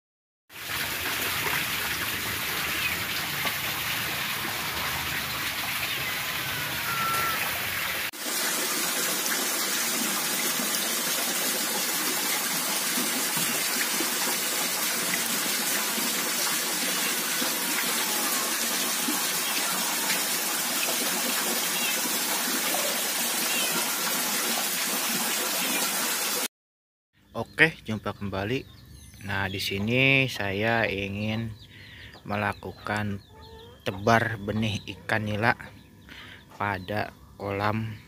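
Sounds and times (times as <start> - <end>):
water rushing and splashing: 0.5 - 26.5.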